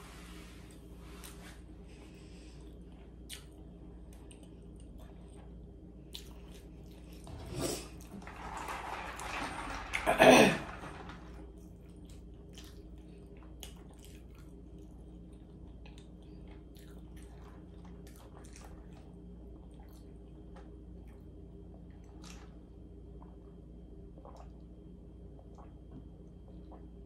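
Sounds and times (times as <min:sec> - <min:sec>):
low steady hum: 0:00.0 - 0:27.0
chewing mouth sounds: 0:12.5 - 0:19.0.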